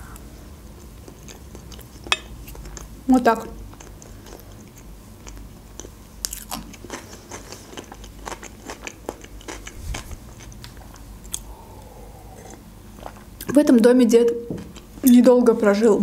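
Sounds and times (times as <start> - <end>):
chewing crunchy salad: 3.6 - 11.5, 12.2 - 13.6.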